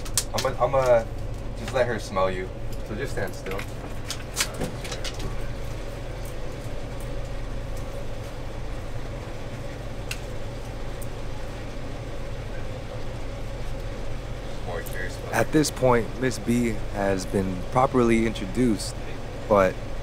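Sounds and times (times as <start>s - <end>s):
faint whine: 0.0s - 20.0s
low mechanical hum: 0.0s - 20.0s.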